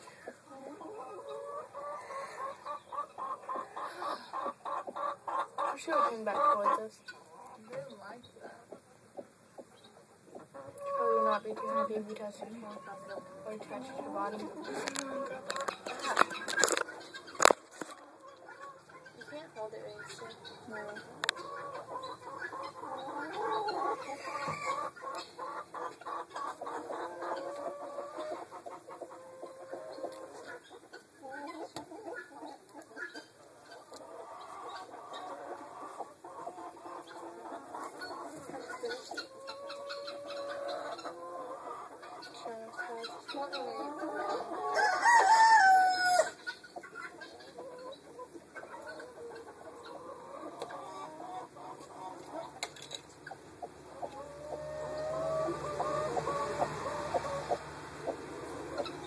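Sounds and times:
chickens clucking: 0:00.0 - 0:59.0
rooster crowing: 0:44.7 - 0:46.4.

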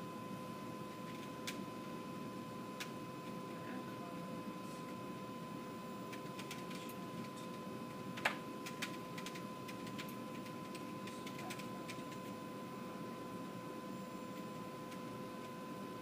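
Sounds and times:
electronic equipment hum: 0:00.0 - 0:16.0
computer keys clicking: 0:01.0 - 0:01.6, 0:06.1 - 0:12.3.

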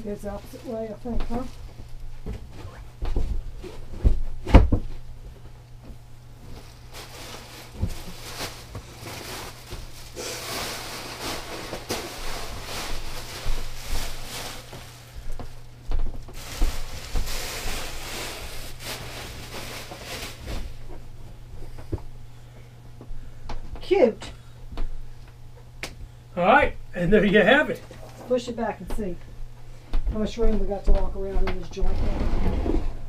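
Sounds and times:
cushions rustling and bumping: 0:05.8 - 0:22.0.

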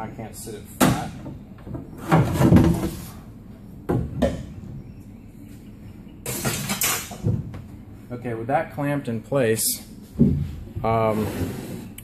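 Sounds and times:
wooden knocks and rubbing: 0:10.1 - 0:11.0.

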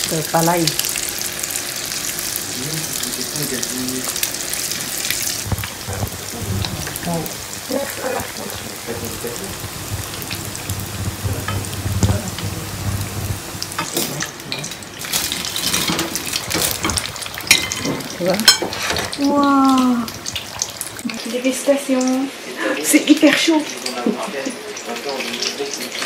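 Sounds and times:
food sizzling in hot oil: 0:00.0 - 0:26.0
low hum: 0:04.8 - 0:13.8.

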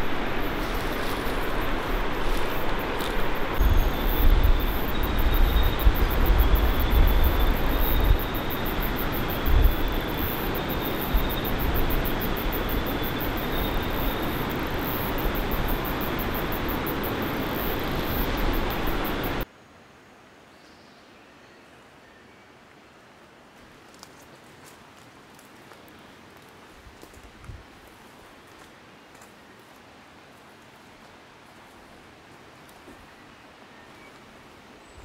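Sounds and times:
river water rushing over rocks: 0:00.0 - 0:05.3
wind buffeting microphone: 0:00.0 - 0:19.4.

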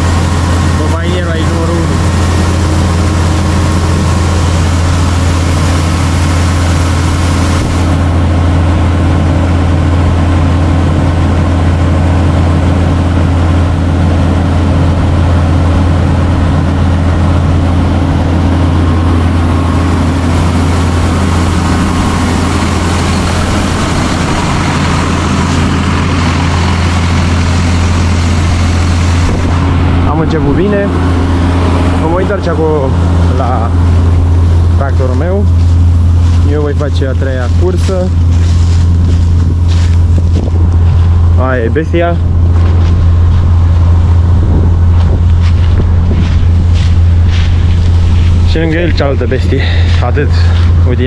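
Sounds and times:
combine harvester engine droning: 0:00.0 - 0:51.0.

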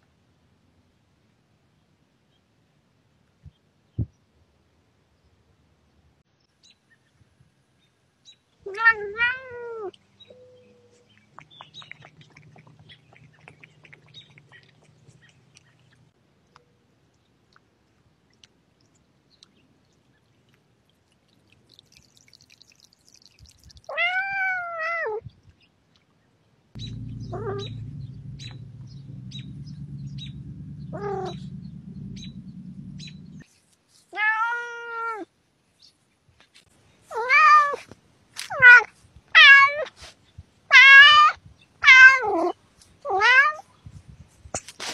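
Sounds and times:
cat meowing: 0:08.7 - 0:09.9, 0:23.9 - 0:25.2, 0:40.7 - 0:43.6.

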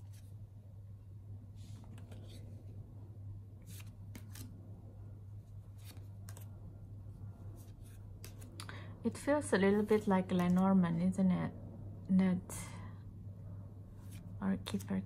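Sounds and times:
steady low hum: 0:00.0 - 0:15.0
cards flipped by hand: 0:01.7 - 0:02.7, 0:03.6 - 0:04.6, 0:05.7 - 0:06.6, 0:07.6 - 0:08.8.

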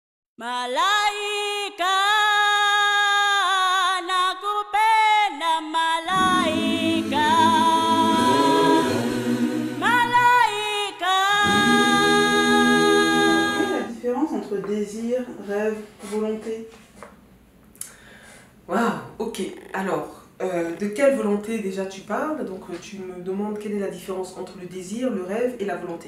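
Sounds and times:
high voice singing sustained notes: 0:06.0 - 0:13.9
lower voices singing: 0:06.0 - 0:14.0.

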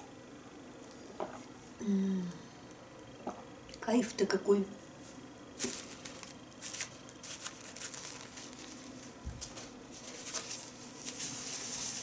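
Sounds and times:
paper napkin rustling: 0:05.0 - 0:12.0.

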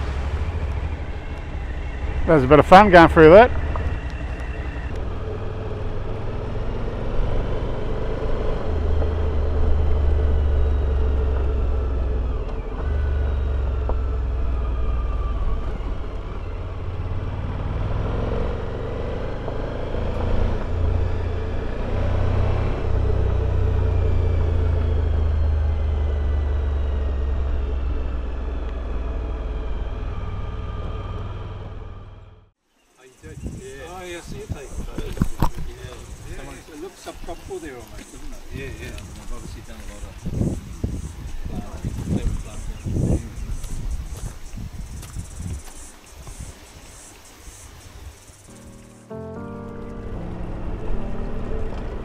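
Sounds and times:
motorcycle engine revving: 0:00.0 - 0:32.6, 0:33.2 - 0:52.0
wind rumble on microphone: 0:33.2 - 0:48.6.

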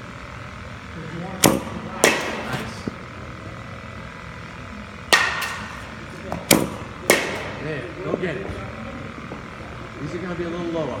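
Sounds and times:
ball striking cage: 0:01.4 - 0:03.0, 0:05.0 - 0:07.7
bat cracking ball: 0:01.4 - 0:03.0, 0:05.0 - 0:07.7.

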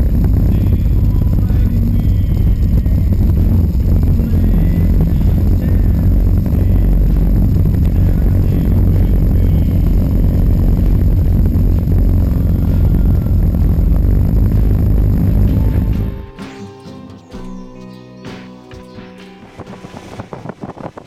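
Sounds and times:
motorcycle engines rumbling: 0:00.0 - 0:16.3
wind: 0:19.0 - 0:21.0.

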